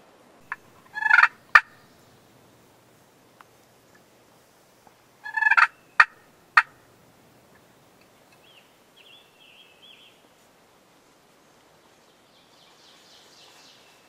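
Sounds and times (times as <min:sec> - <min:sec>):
turkey gobbling: 0:00.4 - 0:02.0, 0:05.2 - 0:07.0
faint songbird chirps: 0:05.2 - 0:06.2, 0:07.4 - 0:10.3, 0:12.0 - 0:14.0.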